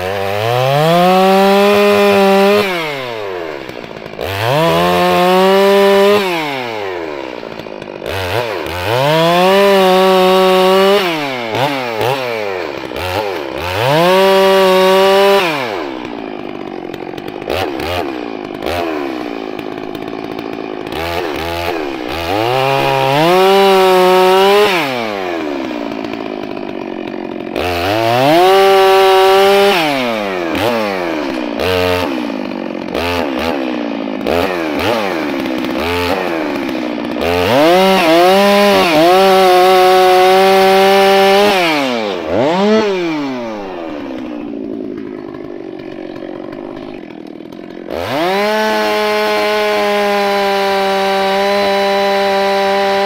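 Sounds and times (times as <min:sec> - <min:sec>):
chainsaw idling: 0:00.0 - 0:53.0
chainsaw revving while cutting: 0:00.0 - 0:53.0.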